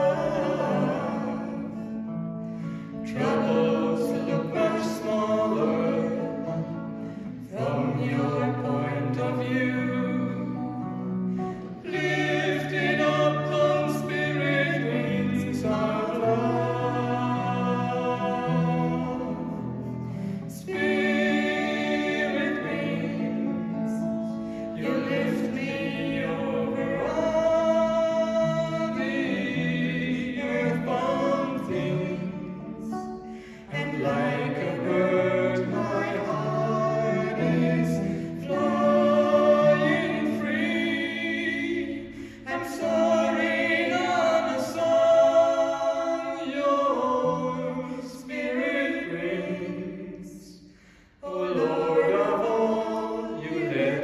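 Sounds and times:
woman and man singing: 0.0 - 1.8, 3.0 - 6.6, 7.5 - 10.8
acoustic guitar: 0.0 - 54.0.

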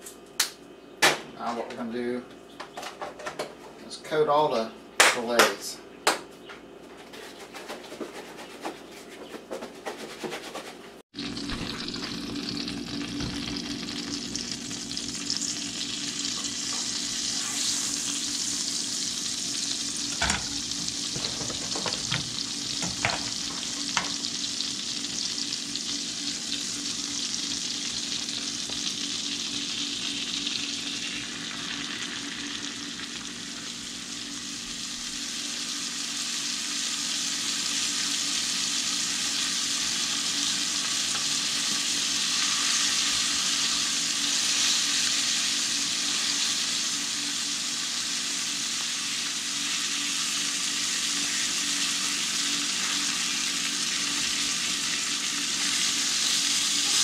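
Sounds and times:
fish frying sizzle: 11.1 - 57.0.

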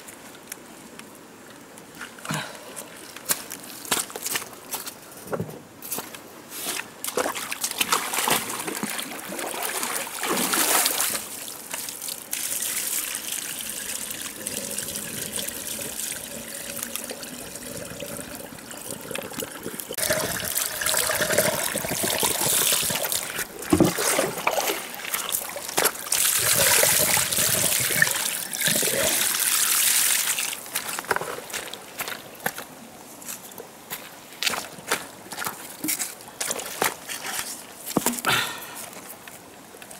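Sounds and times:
water splashing and trickling: 6.6 - 31.8.

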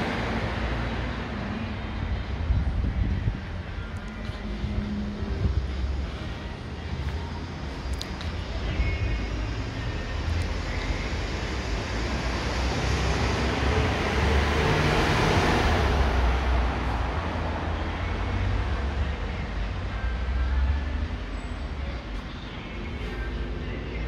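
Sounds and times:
steady low rumble: 1.1 - 12.2
vehicle passing: 11.6 - 18.0.

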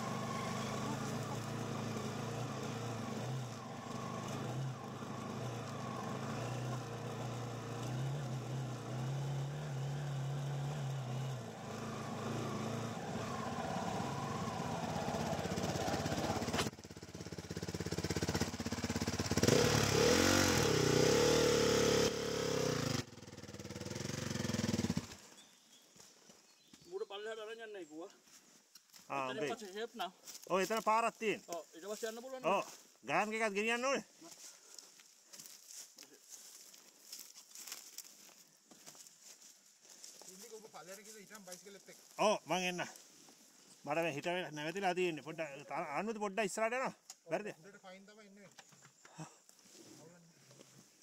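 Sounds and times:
quad bike engine revving: 0.0 - 25.3.

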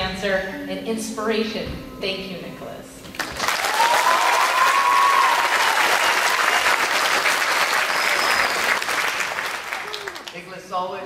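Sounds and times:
audience applause: 3.1 - 10.5.

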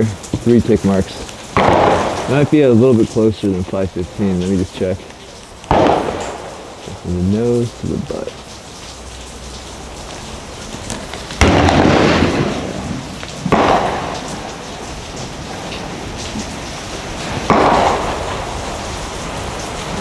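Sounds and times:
rain hissing: 0.0 - 20.0
gunshots with rolling echo: 1.5 - 4.0, 5.7 - 7.2, 11.4 - 19.6.

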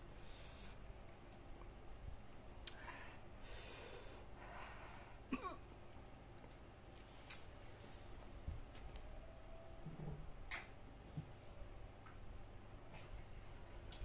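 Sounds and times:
breaths: 2.7 - 5.3.

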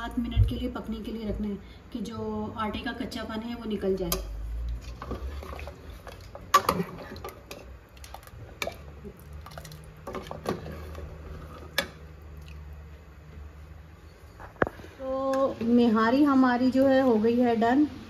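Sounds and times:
thick gravy bubbling: 4.5 - 13.2.

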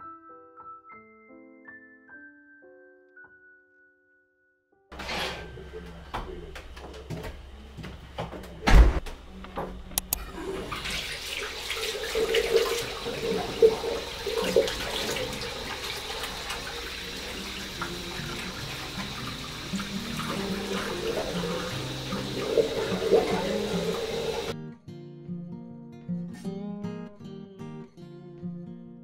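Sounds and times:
door shutting with heavy thump: 8.6 - 9.9
sharp clicks: 9.9 - 10.2
hands lathering and rinsing: 10.0 - 24.5
tap running into washbasin: 10.0 - 24.5.

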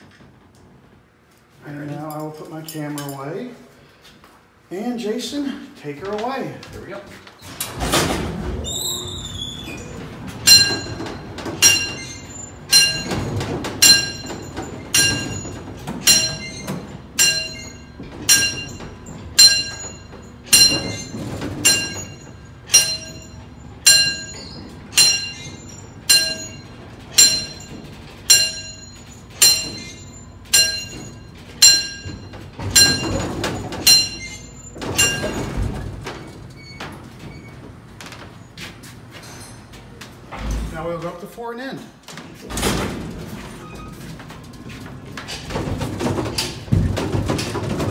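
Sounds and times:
elevator low rumble: 6.0 - 41.3, 42.1 - 47.9
sharp metallic clink: 17.2 - 27.7.

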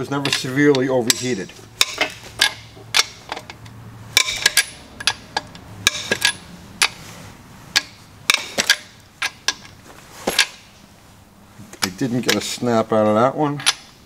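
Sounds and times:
ratchet clicking: 0.3 - 7.0.

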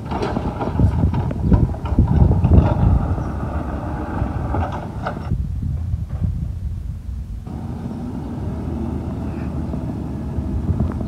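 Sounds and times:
diesel engine running: 7.4 - 11.0.

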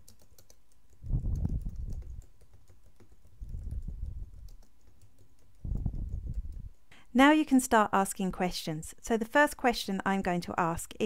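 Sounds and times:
typing on computer keyboard: 0.0 - 6.9.

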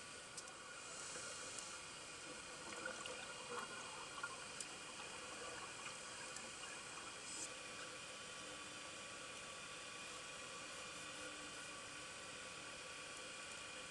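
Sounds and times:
underwater hiss: 0.8 - 2.2
bubbling: 2.3 - 7.4.

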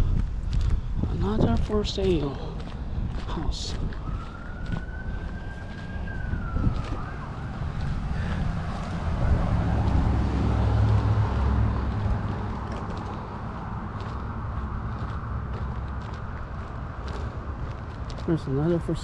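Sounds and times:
low rumble: 0.0 - 18.2
distant siren wailing: 3.2 - 17.8.

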